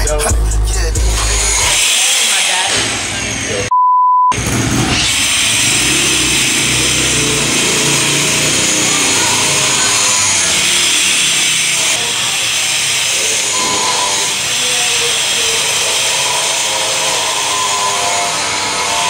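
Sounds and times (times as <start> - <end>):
loud machine noise: 0.0 - 3.7, 4.3 - 19.0
steady bleep tone: 3.7 - 4.4, 13.4 - 14.5.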